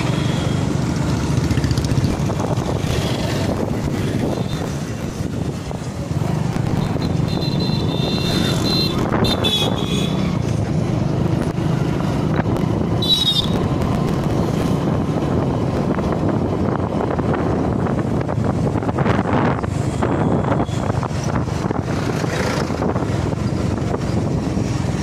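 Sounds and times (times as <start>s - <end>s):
motorcycle engine running: 0.0s - 8.9s
wind noise on microphone: 0.0s - 25.0s.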